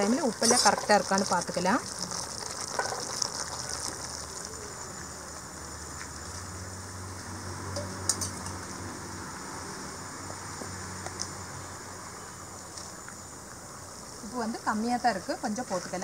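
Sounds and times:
ladle stirring gravy: 0:00.0 - 0:04.7
insects chirring: 0:00.0 - 0:16.0.

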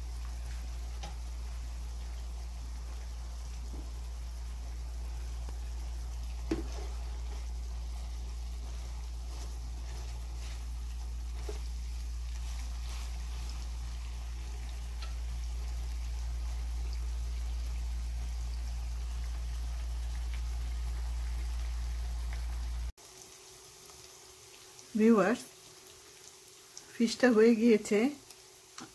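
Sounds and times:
fish sizzling in hot oil: 0:00.0 - 0:28.9.

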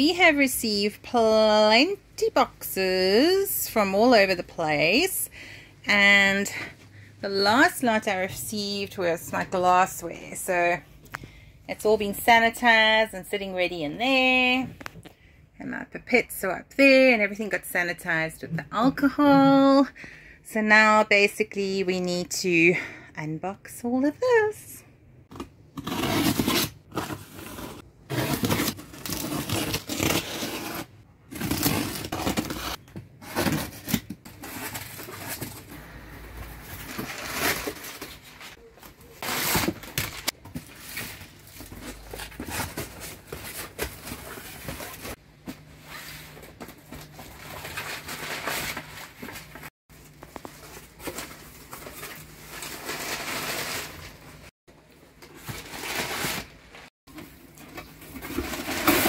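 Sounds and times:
packing tape tearing: 0:25.8 - 0:35.5
cardboard scraping and rustling: 0:25.8 - 0:35.7.

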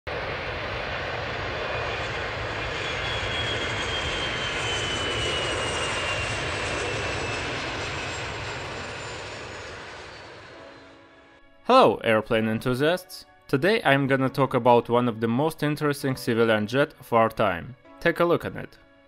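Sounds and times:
jet engines rushing and whining: 0:00.1 - 0:11.4.

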